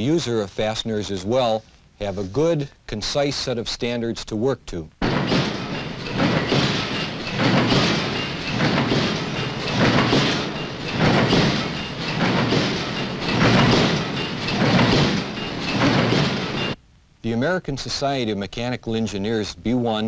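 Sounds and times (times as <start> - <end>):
machine mechanical clatter: 5.0 - 16.8.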